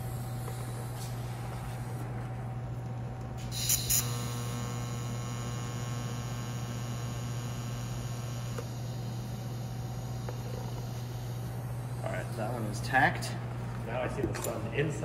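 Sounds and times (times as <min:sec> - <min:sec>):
constant low hum: 0:00.0 - 0:15.0
welding arc crackles: 0:03.4 - 0:12.0
welder buzzing: 0:03.4 - 0:13.1.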